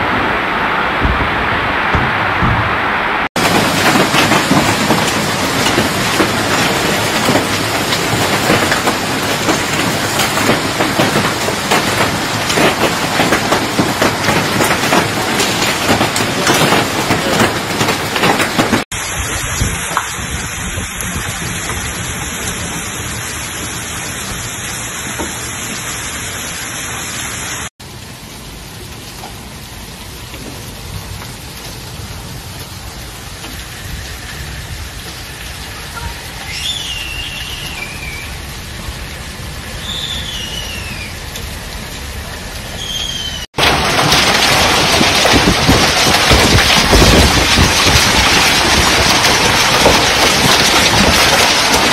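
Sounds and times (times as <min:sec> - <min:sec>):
hailstones pelting down: 0:01.0 - 0:25.8, 0:42.6 - 0:51.9.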